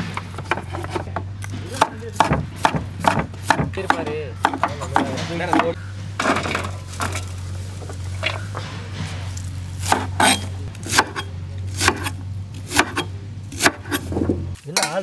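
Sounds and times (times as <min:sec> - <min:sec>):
knife chopping on cutting board: 0:01.8 - 0:05.8, 0:09.8 - 0:12.1, 0:12.7 - 0:14.1.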